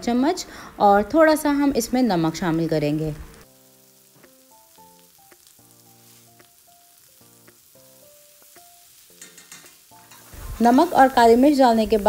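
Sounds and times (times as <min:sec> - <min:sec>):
soft background music: 0:00.0 - 0:12.0
vegetables sizzling in oil: 0:00.0 - 0:12.0
spatula stirring in a wok: 0:07.6 - 0:11.3.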